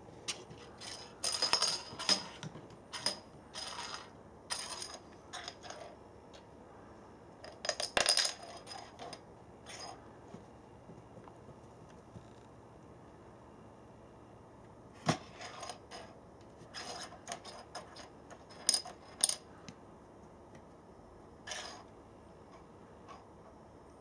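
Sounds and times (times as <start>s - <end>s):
domino clattering on wooden floor: 0.8s - 6.0s, 7.4s - 10.0s, 16.8s - 19.4s.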